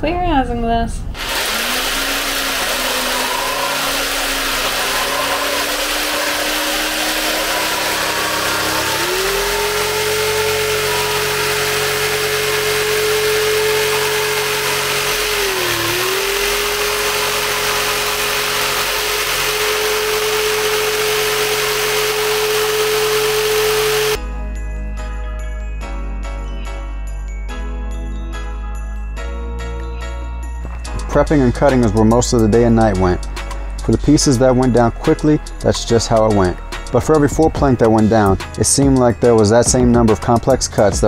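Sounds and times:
jigsaw cutting vinyl plank: 1.2s - 24.2s.

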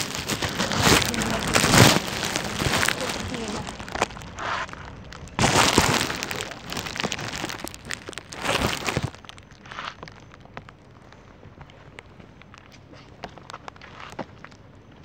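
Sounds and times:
hands rummaging through trash: 0.0s - 9.3s.

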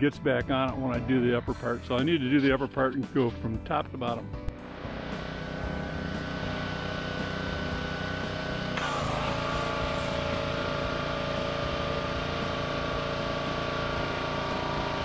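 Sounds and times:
pressure washer engine running: 4.6s - 15.0s
water jet hissing on hull: 8.7s - 10.8s.

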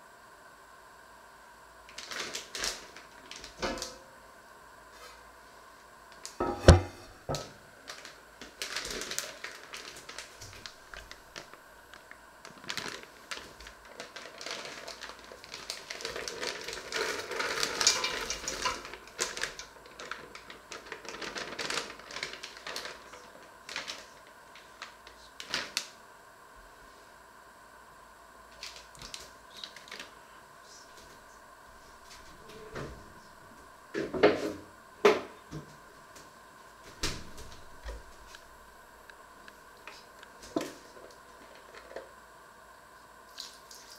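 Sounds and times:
plastic bag crinkling: 1.9s - 3.9s, 6.2s - 25.9s, 28.5s - 32.6s, 39.8s - 42.1s
vegetables pouring into metal pot: 12.7s - 23.0s.

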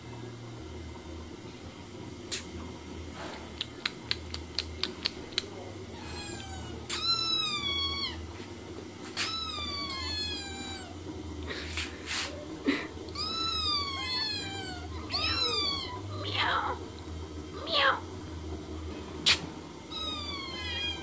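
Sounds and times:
kittens meowing: 6.0s - 8.3s, 9.1s - 11.0s, 13.1s - 16.8s, 19.9s - 21.0s.

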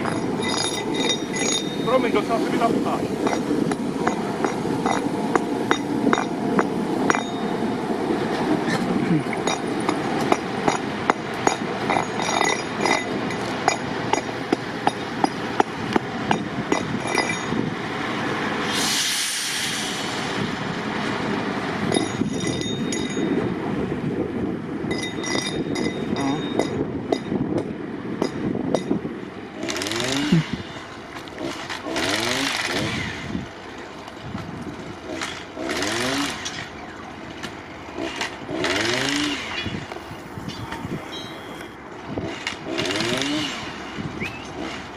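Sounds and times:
tram rumbling: 0.0s - 44.9s
wheels clicking on rails: 0.0s - 44.9s
hiss: 18.6s - 20.7s
small engine revving: 29.6s - 33.5s, 34.9s - 37.0s, 37.9s - 44.9s.

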